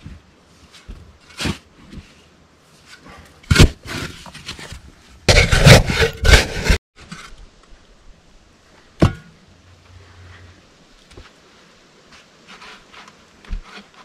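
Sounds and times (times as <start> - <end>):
shovel digging into sand: 5.3 - 6.8.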